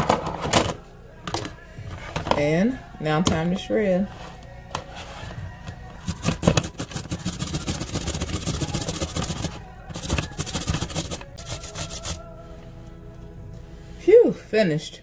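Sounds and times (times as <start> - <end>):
cucumber rasping on metal grater: 6.1 - 12.2.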